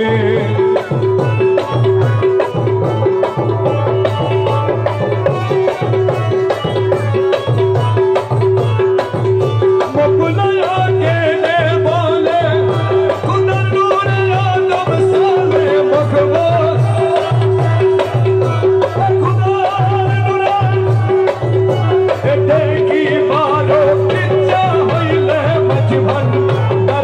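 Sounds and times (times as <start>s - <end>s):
person singing: 0.0s - 1.2s
drum and tabla beat: 0.0s - 27.0s.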